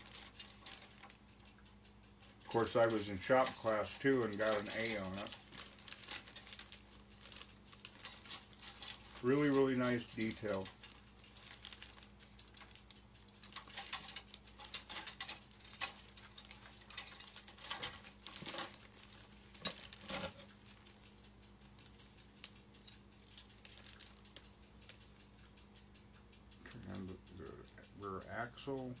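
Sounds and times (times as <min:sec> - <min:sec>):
plastic bags crinkling: 0:00.0 - 0:01.2, 0:02.2 - 0:21.2, 0:23.2 - 0:24.4
plastic parts clicking together: 0:00.0 - 0:01.6, 0:02.2 - 0:25.2.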